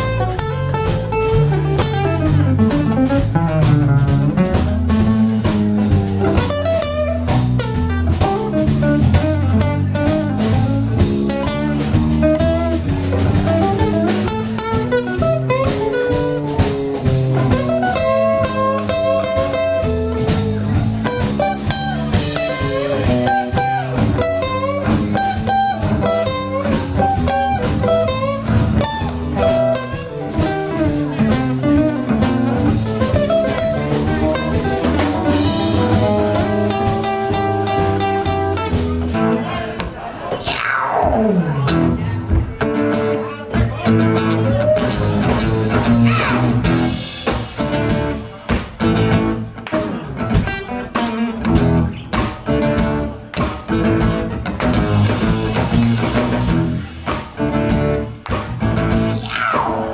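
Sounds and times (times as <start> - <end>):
acoustic guitar: 0.0 - 59.9
bass: 0.0 - 59.9
drum kit: 0.0 - 59.9.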